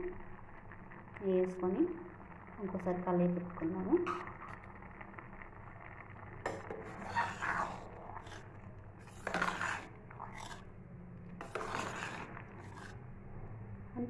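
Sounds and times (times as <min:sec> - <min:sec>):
low steady hum: 0:00.0 - 0:14.0
metal ladle scraping a pot: 0:06.5 - 0:10.7, 0:11.4 - 0:13.0.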